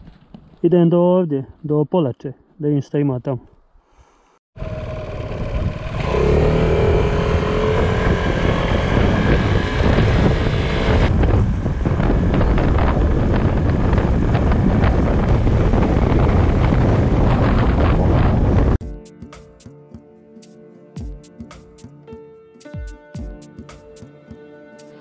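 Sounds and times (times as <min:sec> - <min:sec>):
scooter engine whine: 0:04.6 - 0:18.8
wind buffeting microphone: 0:04.6 - 0:18.8.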